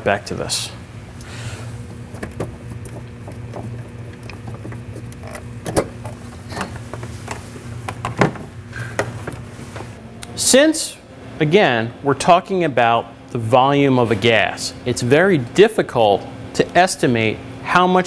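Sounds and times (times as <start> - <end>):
steady low hum: 0.0 - 18.0
handling noises: 1.2 - 10.0.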